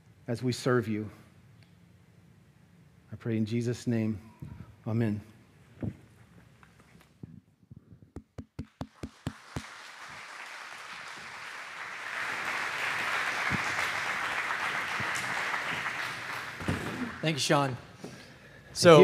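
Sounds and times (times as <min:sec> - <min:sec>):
audience clapping: 0:08.6 - 0:17.8.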